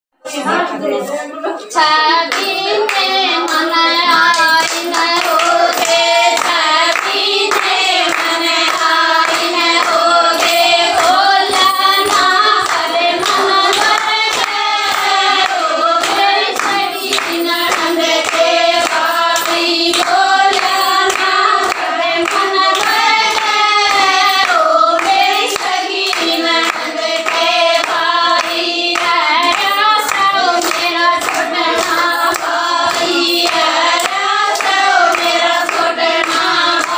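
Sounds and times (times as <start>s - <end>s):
women singing folk song: 1.7s - 36.9s
rhythmic hand clapping: 1.8s - 36.9s.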